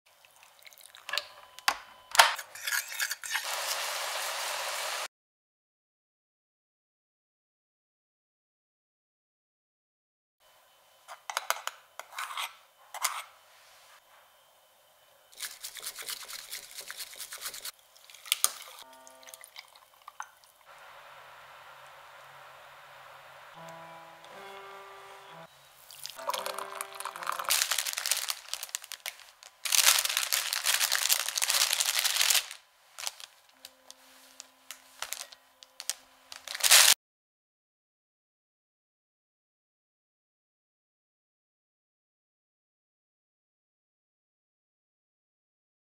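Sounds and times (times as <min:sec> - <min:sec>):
bamboo whisk scraping in bowl: 0:15.4 - 0:17.7
plastic bag crinkling: 0:25.9 - 0:37.0.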